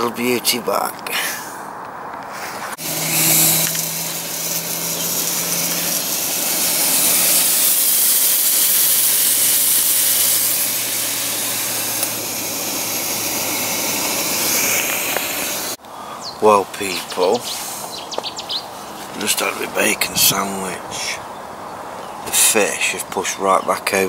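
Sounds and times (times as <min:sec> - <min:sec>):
gas burner hiss: 0:02.7 - 0:15.8
low hum: 0:02.7 - 0:15.8
bacon sizzling in a frying pan: 0:02.8 - 0:15.8.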